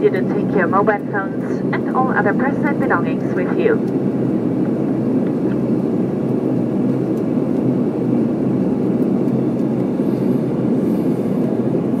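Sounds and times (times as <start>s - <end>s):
airliner engine drone in cabin: 0.0s - 12.0s.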